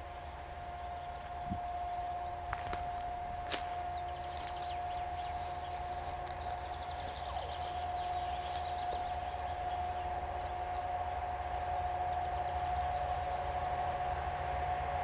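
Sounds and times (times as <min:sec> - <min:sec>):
diesel locomotive rumble and whine: 0:00.0 - 0:15.0
faint bird chirps: 0:00.4 - 0:10.9.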